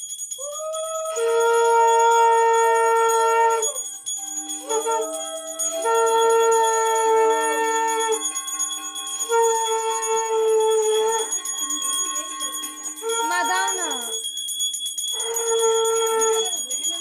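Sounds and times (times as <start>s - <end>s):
small hand bell ringing: 0.0s - 17.0s
conch shell blown: 0.8s - 14.1s.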